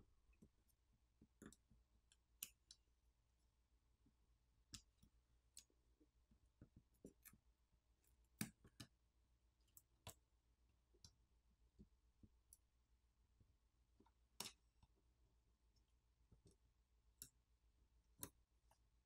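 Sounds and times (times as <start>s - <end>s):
small clicks and taps: 0.3s - 2.9s, 4.0s - 7.4s, 8.2s - 9.0s, 9.7s - 10.2s, 14.0s - 15.0s, 18.2s - 18.8s.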